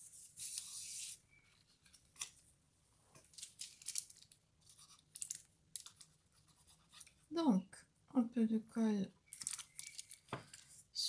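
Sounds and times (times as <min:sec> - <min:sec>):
paper sliding rustle: 0:00.0 - 0:01.2
light paper clicks and rustles: 0:03.1 - 0:07.2, 0:09.3 - 0:10.8.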